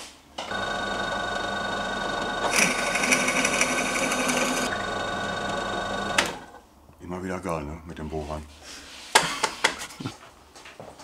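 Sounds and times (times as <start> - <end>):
drill bit cutting wood hiss: 0.5 - 6.6
electric drill motor whine: 0.5 - 6.6.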